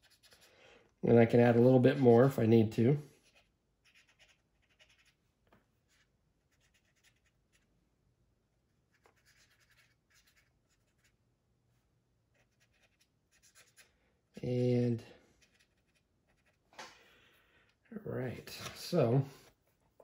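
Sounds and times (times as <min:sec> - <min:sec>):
cotton swab rubbing on plastic: 0:00.0 - 0:00.6, 0:03.2 - 0:07.8, 0:08.7 - 0:11.2, 0:12.3 - 0:14.0, 0:15.3 - 0:16.8.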